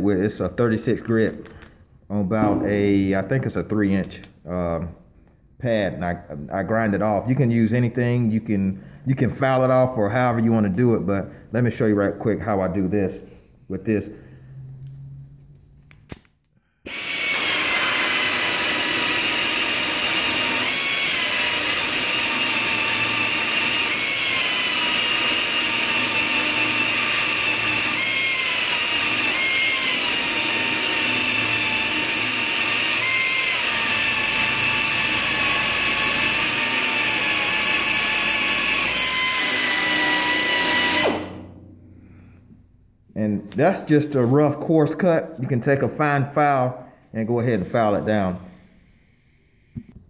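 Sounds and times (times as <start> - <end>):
grinder whining on metal: 16.9 - 41.4.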